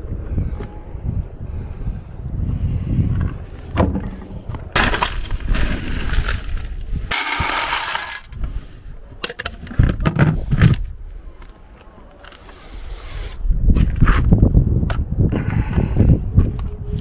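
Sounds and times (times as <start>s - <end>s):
kibble rattling into metal bowl: 7.1s - 8.4s.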